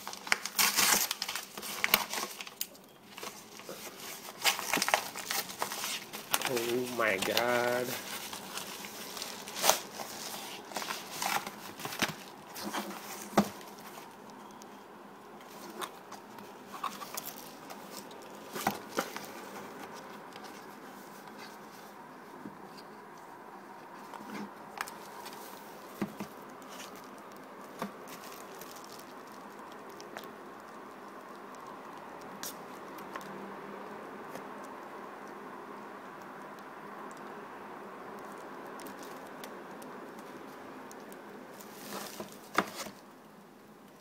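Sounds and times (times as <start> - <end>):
packaging crinkling: 0.0 - 14.8, 15.4 - 21.7, 24.1 - 33.4, 38.2 - 43.1
faint background noise: 0.0 - 44.0.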